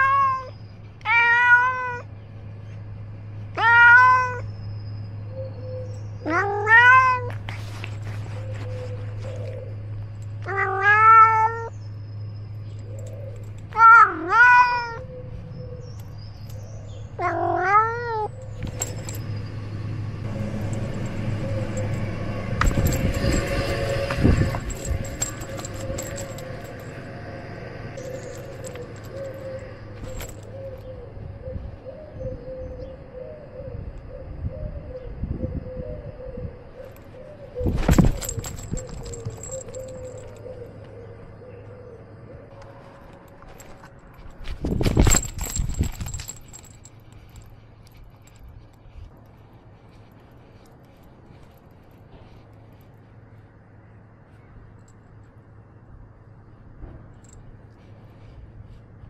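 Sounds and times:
cat meowing: 0.0 - 2.1, 3.6 - 4.4, 6.2 - 7.4, 10.5 - 11.7, 13.7 - 15.1, 17.2 - 18.3
rustling and scuffling: 6.3 - 10.7, 18.3 - 19.4, 20.2 - 27.1, 28.0 - 30.9, 36.8 - 41.0, 42.5 - 53.5
steady low hum: 18.3 - 59.0.

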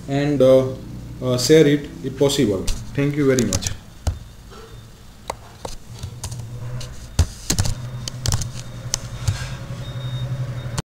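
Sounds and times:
keyboard and mouse clicks: 2.6 - 4.3, 5.3 - 6.5, 7.1 - 9.4.

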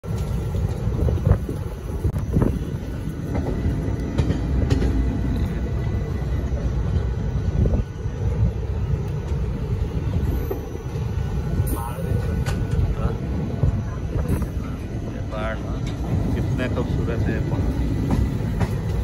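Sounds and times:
train rumbling on track: 0.0 - 19.0
sharp knocks of train: 2.3 - 5.7, 12.0 - 14.8, 15.8 - 19.0.

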